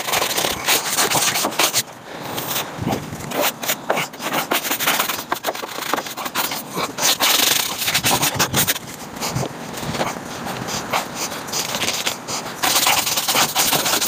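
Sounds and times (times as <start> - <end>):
scrubbing and scraping strokes: 0.0 - 14.0
hiss: 10.7 - 14.0.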